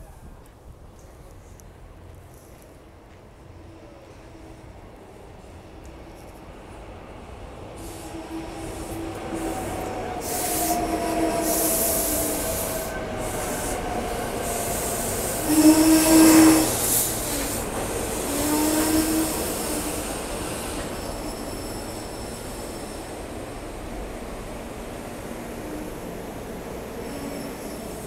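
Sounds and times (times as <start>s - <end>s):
electric train whine: 2.5s - 28.0s
train wheels squealing: 7.8s - 23.8s, 25.6s - 28.0s.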